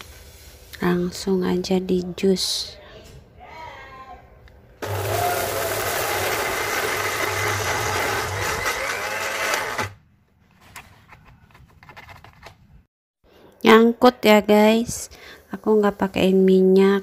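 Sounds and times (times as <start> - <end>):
electric blender chopping: 4.8 - 10.0.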